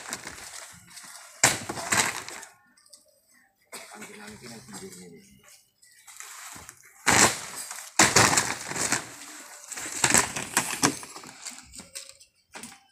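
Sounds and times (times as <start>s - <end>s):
plywood sheets crashing onto heap: 1.4s - 2.4s, 7.1s - 11.6s.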